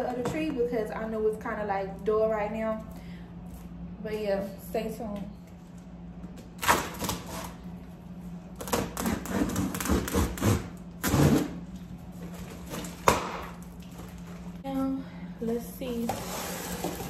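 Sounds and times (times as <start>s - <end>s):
box cutter scraping cardboard: 8.7s - 11.6s.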